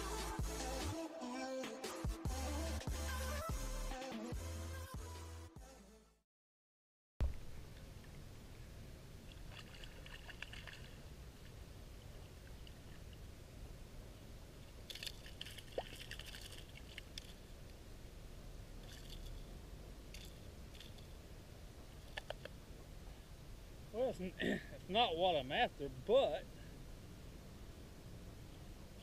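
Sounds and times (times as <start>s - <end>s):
low steady rumble: 7.2s - 29.0s
water sloshing and splashing: 9.2s - 13.3s, 14.8s - 17.5s, 18.8s - 19.5s.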